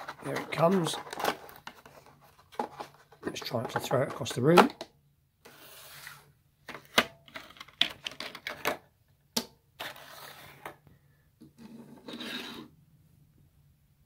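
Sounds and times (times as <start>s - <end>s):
plastic rustling: 0.0s - 3.9s
plastic packaging crinkling and clicking: 0.0s - 4.8s.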